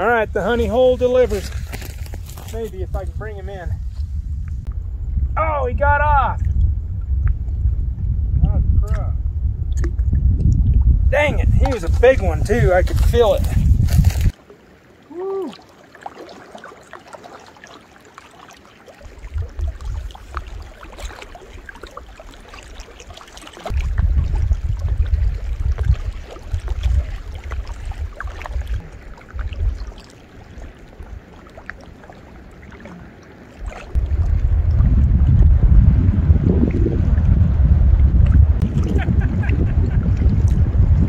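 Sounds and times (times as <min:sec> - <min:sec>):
wind buffeting microphone: 0:00.0 - 0:14.4, 0:19.0 - 0:31.3, 0:33.6 - 0:41.0
small waves lapping: 0:11.6 - 0:35.3.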